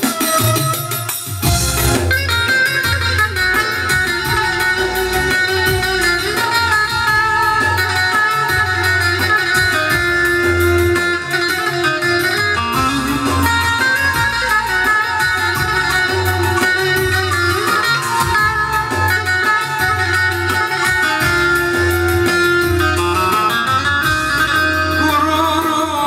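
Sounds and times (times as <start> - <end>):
electronic keyboard with drum backing: 0.0 - 26.0
plucked lute: 1.4 - 26.0.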